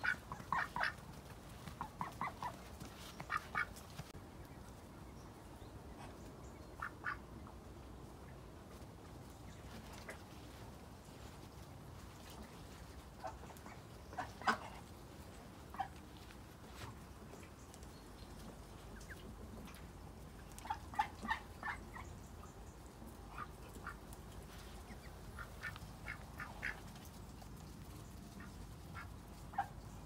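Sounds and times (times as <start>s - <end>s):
ducks calling: 0.0s - 4.1s, 6.7s - 7.3s, 12.3s - 16.9s, 23.2s - 27.1s.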